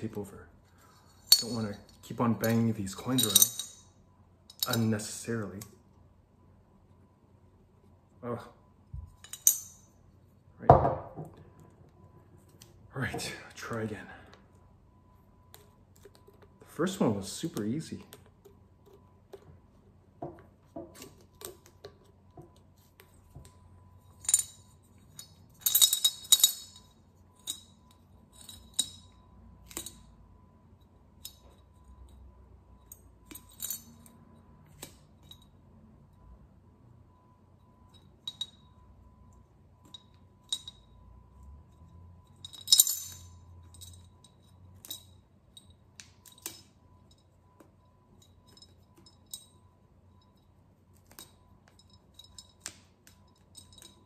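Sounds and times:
coins rattling in ceramic bank: 1.0 - 3.9, 24.1 - 30.2, 41.7 - 47.2, 51.0 - 54.0.

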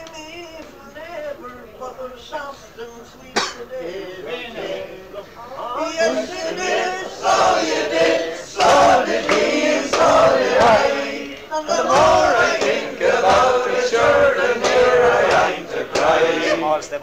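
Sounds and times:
men singing together: 3.1 - 17.0.

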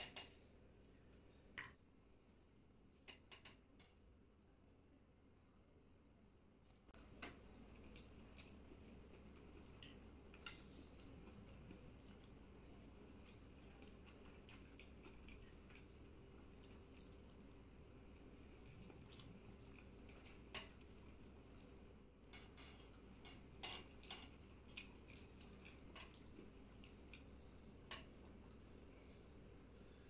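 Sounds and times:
low steady hum: 0.0 - 30.0
faint chewing: 7.0 - 30.0.

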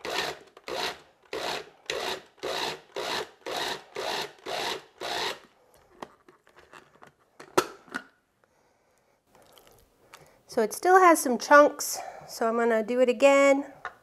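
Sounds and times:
food processor pulsing: 0.0 - 5.4.

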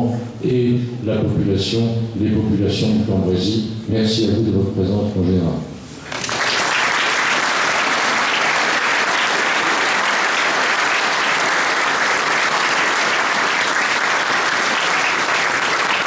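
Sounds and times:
crowd applauding: 6.1 - 16.0.

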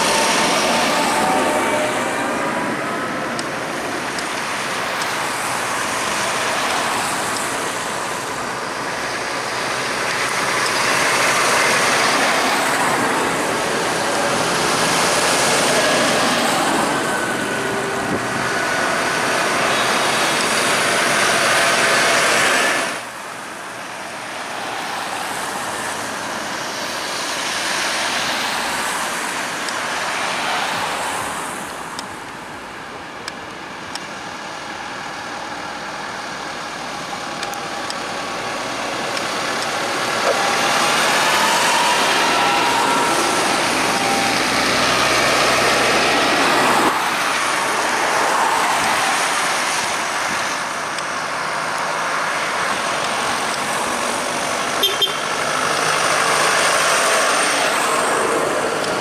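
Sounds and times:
tractors driving past: 0.0 - 59.0.

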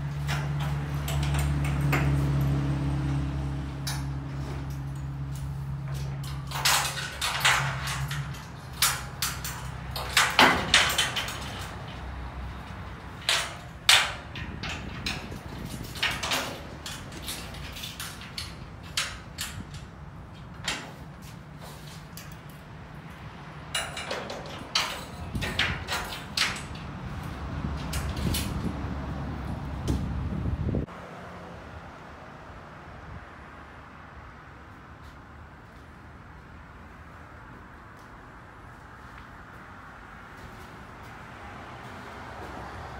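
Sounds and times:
metal panels clanking and rattling: 0.0 - 2.8, 3.6 - 22.7, 23.6 - 28.8.

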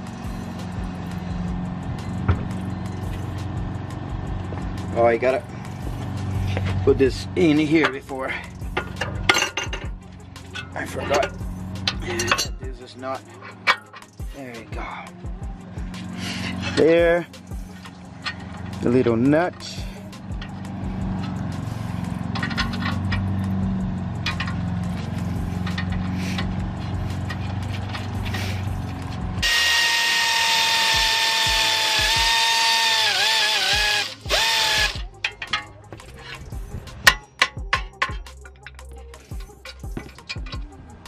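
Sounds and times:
tool handling clicks and knocks: 7.8 - 14.7, 16.0 - 29.3, 33.8 - 41.0
impact wrench whining: 16.0 - 40.7.

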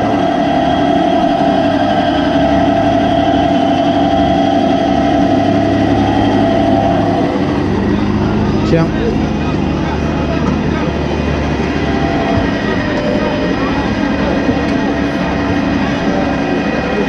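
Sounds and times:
juice press motor hum: 0.0 - 17.0.

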